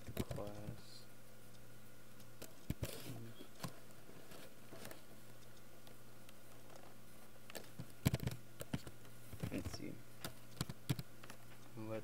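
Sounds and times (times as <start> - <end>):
low electrical hum: 0.0 - 12.0
keyboard keystrokes clicking: 7.5 - 11.4.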